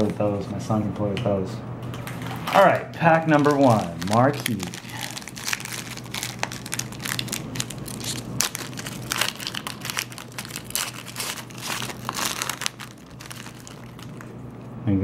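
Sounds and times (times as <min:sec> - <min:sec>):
foil wrapper crinkling: 0:02.6 - 0:14.6.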